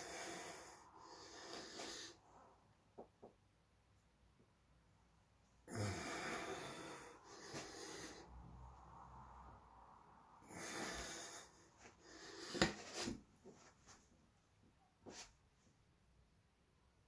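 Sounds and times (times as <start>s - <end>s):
man breathing out hard: 5.7s - 8.4s.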